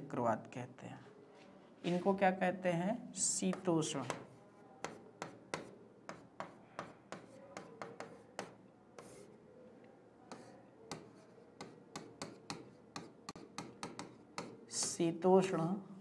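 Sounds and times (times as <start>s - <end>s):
pen tapping and scratching on screen: 3.4s - 9.4s, 10.3s - 15.1s.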